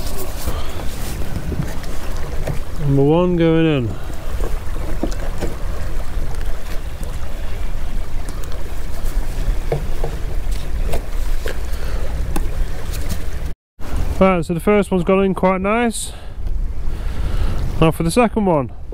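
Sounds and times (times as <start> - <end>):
wind buffeting microphone: 0.0 - 18.9
wooden plank knocking and scraping: 9.6 - 11.6.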